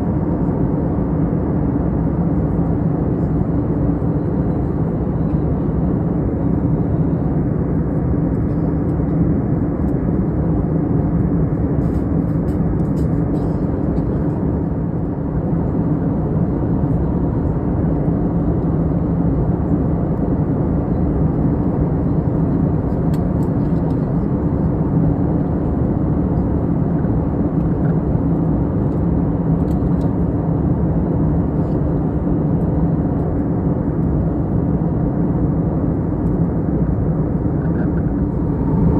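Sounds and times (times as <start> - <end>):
jet airliner cabin drone: 0.0 - 38.9
steady hum: 33.3 - 38.9.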